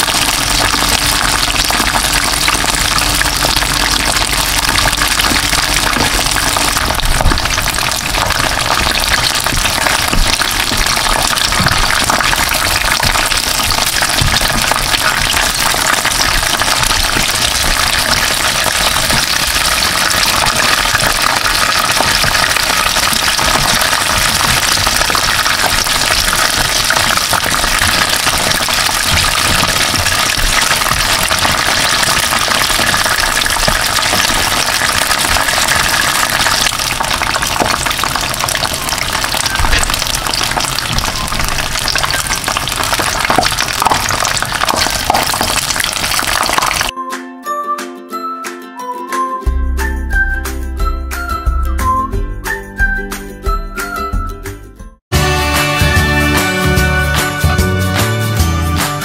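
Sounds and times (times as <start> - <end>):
chicken wings frying in oil: 0.0 - 46.9.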